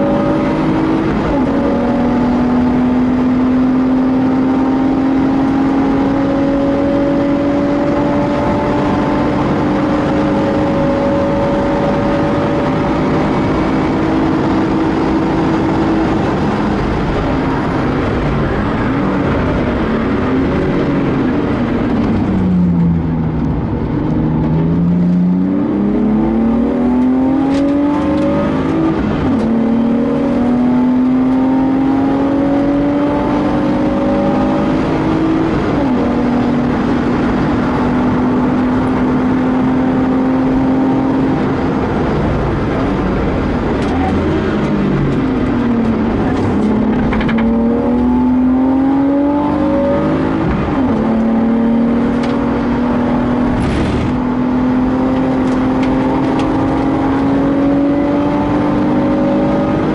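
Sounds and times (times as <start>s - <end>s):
car engine at full throttle: 0.0s - 59.9s
wind and tyre noise: 0.0s - 59.9s.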